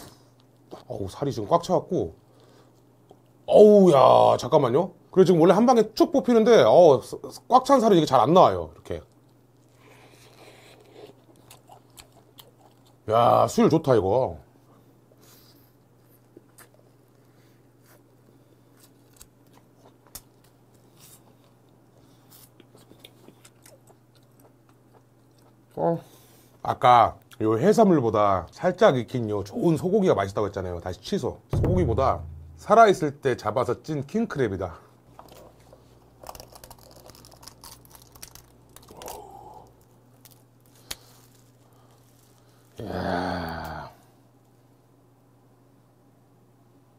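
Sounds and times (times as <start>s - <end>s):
person chewing: 9.2s - 13.0s, 16.1s - 25.8s, 36.2s - 42.2s
crab shell cracking and tearing: 18.8s - 20.8s, 36.2s - 42.8s
low hum: 31.5s - 33.2s.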